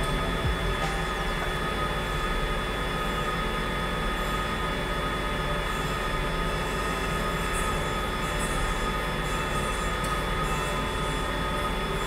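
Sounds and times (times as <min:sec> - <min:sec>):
milling machine whine: 0:00.0 - 0:12.0.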